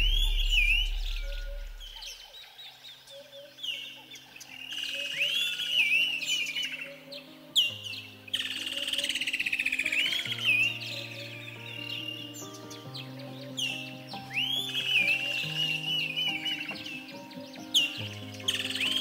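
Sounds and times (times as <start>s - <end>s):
deep bass note: 0.0s - 2.1s
ambient synth music: 0.0s - 2.3s
whistled bird calls: 0.0s - 2.3s, 3.1s - 12.6s.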